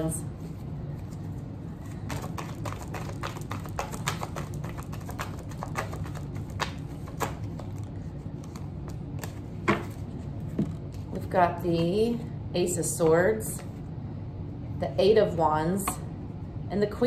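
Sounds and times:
cards being shuffled: 0.5s - 11.2s.

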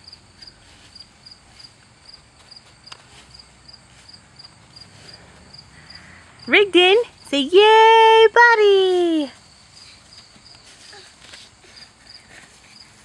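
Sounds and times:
cricket chirping: 0.0s - 7.5s.

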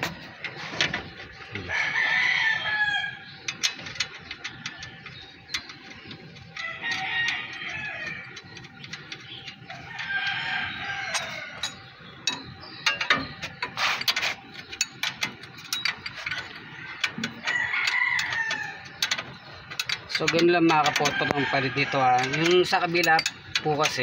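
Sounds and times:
rooster crowing: 1.6s - 3.2s, 6.6s - 8.2s, 9.8s - 11.6s, 16.8s - 18.9s.

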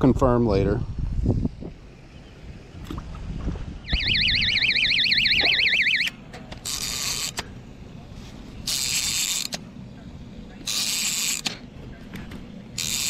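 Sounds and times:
bite alarm warbling tone: 3.8s - 6.1s
fishing reel buzzing: 6.6s - 7.4s, 8.6s - 9.5s, 10.6s - 11.5s, 12.8s - 13.0s.

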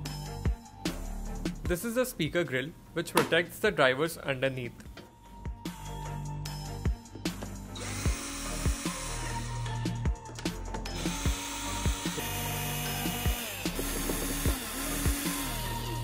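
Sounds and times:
background music with steady beat: 0.0s - 16.0s
cordless drill whirring: 7.7s - 10.0s, 10.9s - 16.0s.

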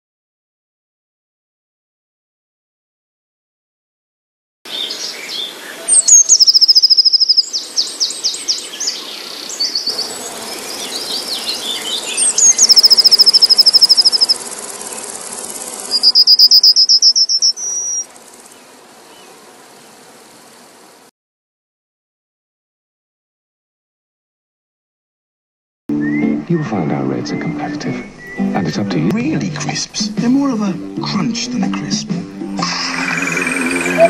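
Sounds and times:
high-pitched chirping trills: 5.9s - 8.6s, 9.6s - 18.1s, 32.8s - 34.0s.

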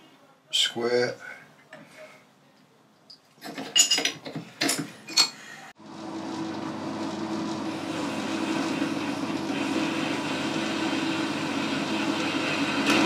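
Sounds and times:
metal lathe running hum: 5.8s - 13.0s.

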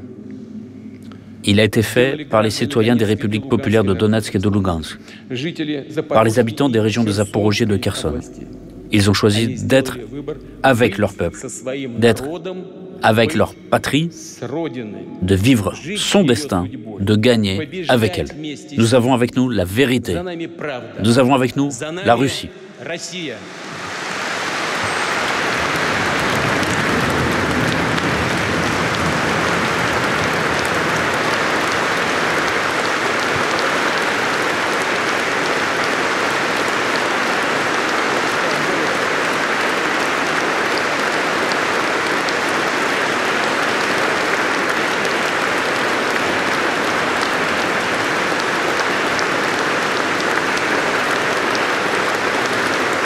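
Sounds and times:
audience applause: 22.1s - 53.0s.

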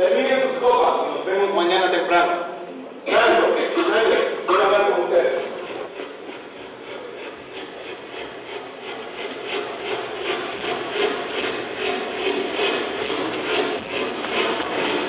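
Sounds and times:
train chugging: 3.2s - 15.0s.

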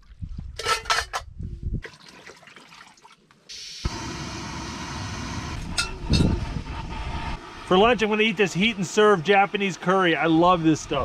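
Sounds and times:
camp stove burner hissing: 3.5s - 11.0s.

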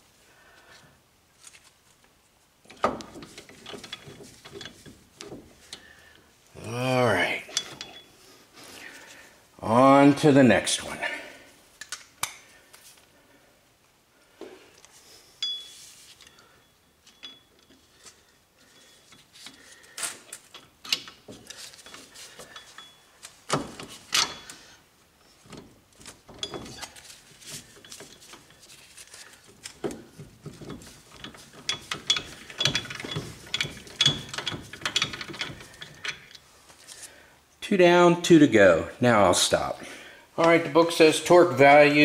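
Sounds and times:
metal tools clinking: 2.7s - 5.9s, 7.2s - 8.2s, 15.4s - 36.4s.

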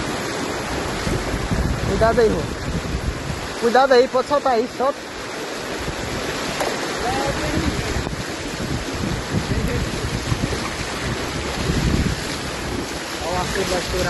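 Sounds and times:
wind buffeting microphone: 0.0s - 4.3s, 5.2s - 14.0s
floodwater rushing and churning: 0.0s - 14.0s.

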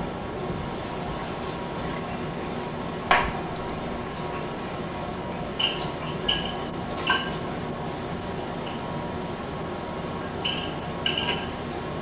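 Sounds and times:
dishes clattering: 5.6s - 7.4s, 10.4s - 11.6s
ringing dish clinks: 10.4s - 11.6s.

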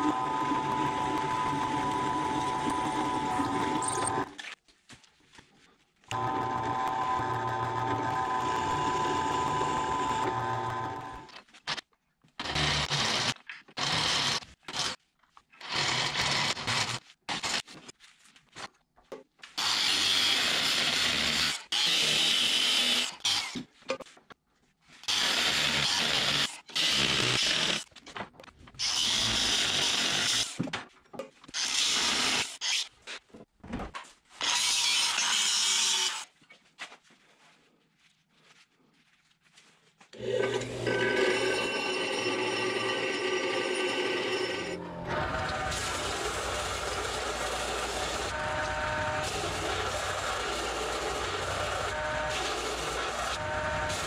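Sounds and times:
angle grinder cutting steel: 40.2s - 54.0s
motor whining: 40.2s - 54.0s.

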